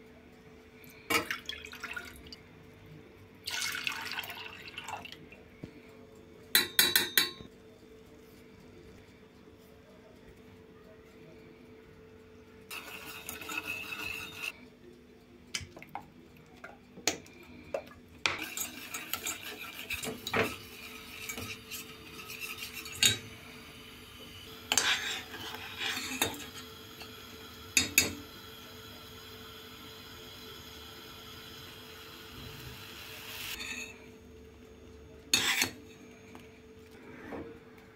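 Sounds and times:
whisk clinking against pot: 12.7s - 14.5s, 18.3s - 23.2s, 24.7s - 26.5s
whisk scraping metal pot: 12.7s - 14.6s, 18.3s - 23.3s, 24.7s - 26.6s, 35.3s - 35.8s.

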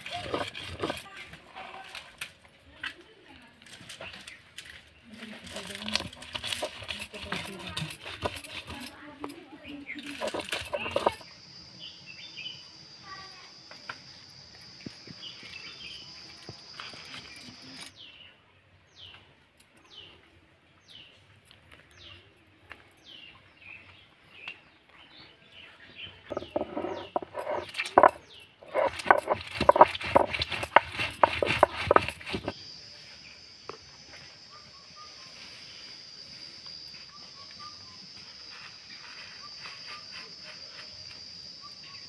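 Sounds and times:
stone grinding chillies: 0.0s - 2.0s, 5.2s - 9.0s, 9.9s - 11.3s, 26.3s - 32.6s
insect high drone: 10.0s - 18.1s, 27.0s - 42.0s.

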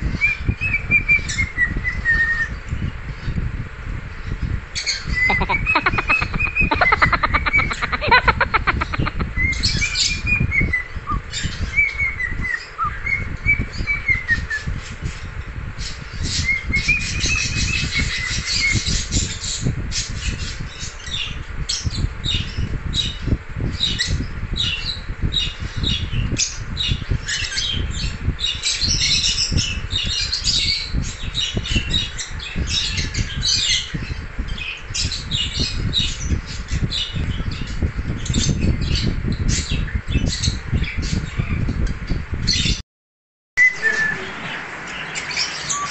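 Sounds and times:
steady low rumble: 2.6s - 11.7s
cockatiel whistling and chirping: 5.3s - 9.8s.

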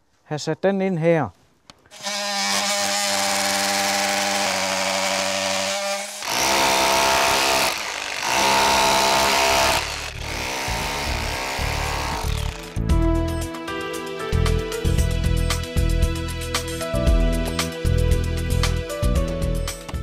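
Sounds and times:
power tool cutting wood: 1.9s - 12.8s.

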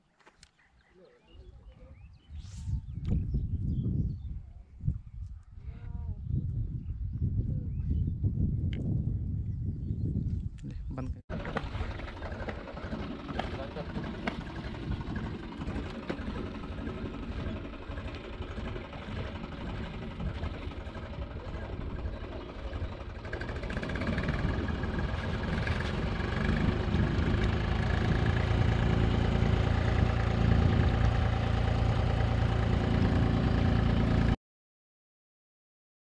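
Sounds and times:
engine humming: 11.3s - 34.4s.

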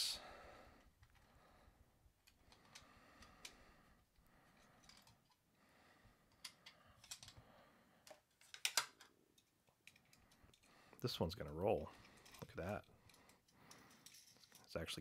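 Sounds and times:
small plastic clicks and taps: 8.1s - 10.2s.

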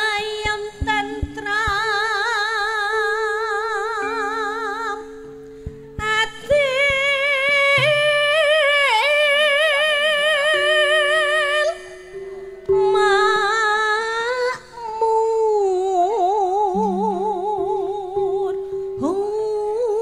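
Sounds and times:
woman singing with vibrato: 0.0s - 5.3s, 5.9s - 20.0s
sustained instrument notes: 5.5s - 9.5s.

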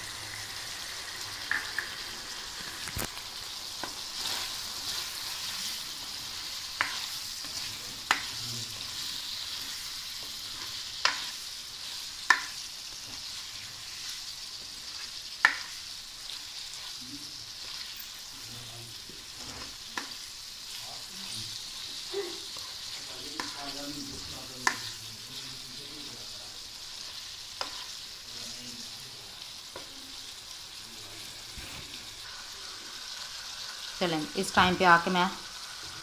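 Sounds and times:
food sizzling in oil: 0.0s - 36.0s
spatula clacking on pan: 6.6s - 8.4s, 9.5s - 11.4s, 12.2s - 12.6s, 15.4s - 15.8s, 19.9s - 20.2s, 23.4s - 23.7s, 24.6s - 25.0s, 27.6s - 27.9s.

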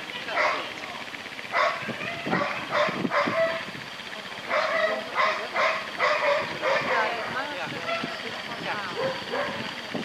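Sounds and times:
dog barking in high yelps: 0.3s - 0.7s, 1.5s - 3.7s, 4.5s - 7.2s, 9.0s - 9.6s.

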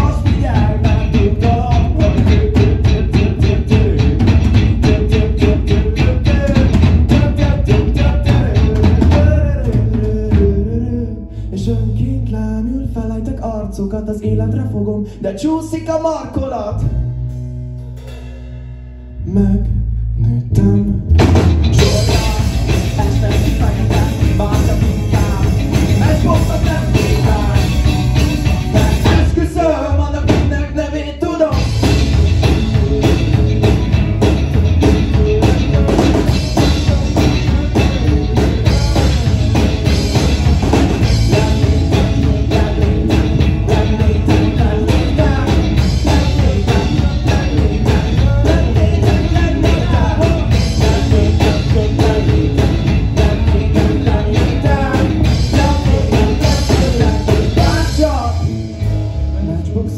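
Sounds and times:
drum kit: 0.0s - 10.8s, 16.8s - 19.4s, 20.6s - 59.9s
electric guitar: 0.0s - 12.0s, 20.6s - 59.9s
man singing lead vocal: 0.0s - 17.1s, 19.2s - 59.9s
bass guitar: 0.0s - 59.9s
keyboard: 31.5s - 59.9s.

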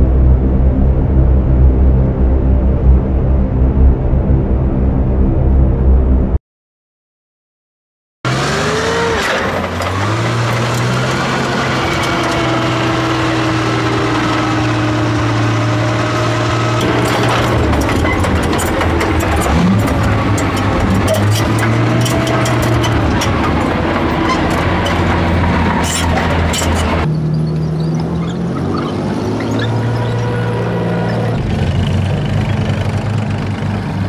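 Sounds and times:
tracks squeaking and squealing: 8.3s - 33.6s
tank engine running: 8.3s - 34.0s
metallic track clanking: 8.6s - 33.1s.

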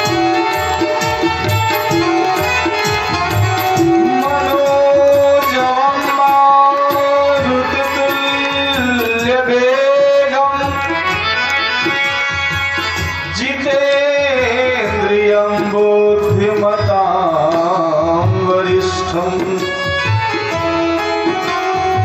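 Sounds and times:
tabla drumming: 0.0s - 22.0s
man singing long held notes: 3.9s - 11.1s.

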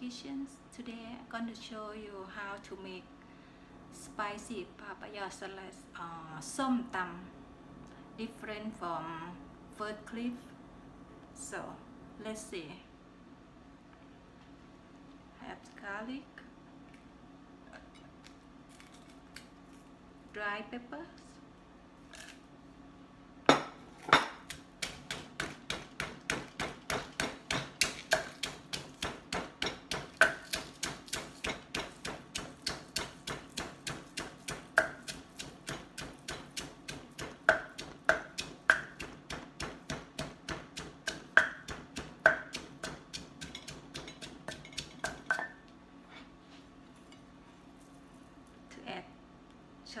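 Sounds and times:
pestle pounding in mortar: 23.5s - 45.5s.

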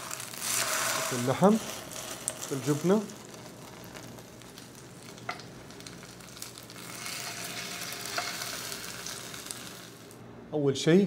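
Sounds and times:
taco sizzling in oil: 0.0s - 10.2s.

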